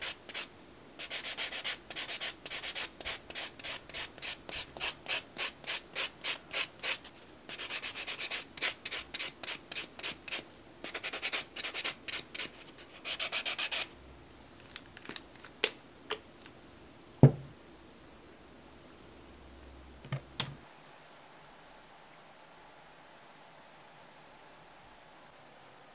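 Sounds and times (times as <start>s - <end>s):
sharp knock: 17.2s - 17.5s.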